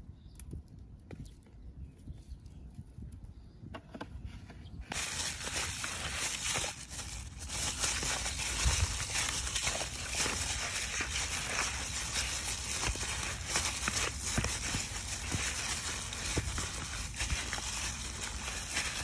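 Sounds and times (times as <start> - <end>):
plastic bag crinkling: 4.9 - 19.0.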